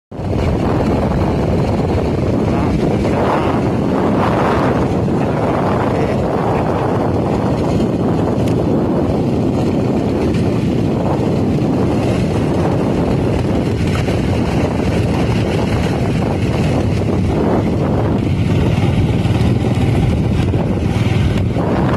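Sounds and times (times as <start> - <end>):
vehicle rumble: 0.1 - 21.9
wind buffeting microphone: 0.1 - 21.9.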